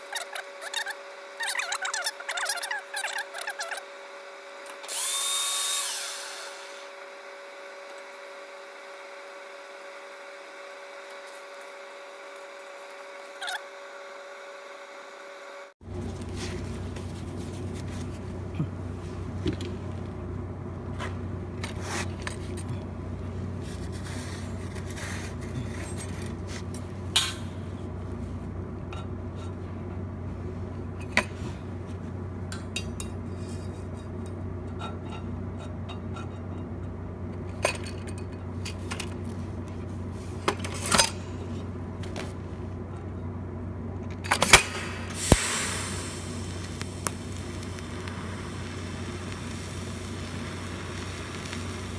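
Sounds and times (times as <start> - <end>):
steady low hum: 0.0 - 51.9
welding arc hissing crackle: 4.7 - 15.0, 44.3 - 51.9.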